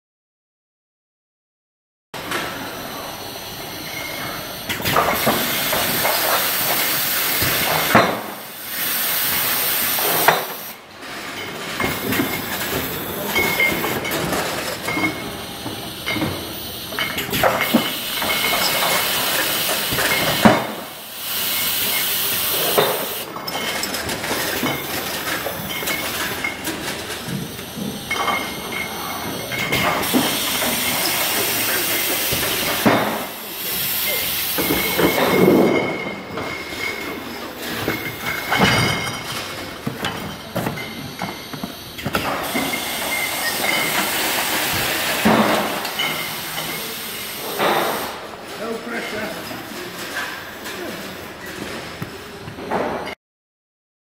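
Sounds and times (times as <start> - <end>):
machine hiss: 2.2 - 10.8, 11.5 - 48.4
glass bottles jostling: 10.6 - 20.5, 21.6 - 32.9, 34.2 - 44.9.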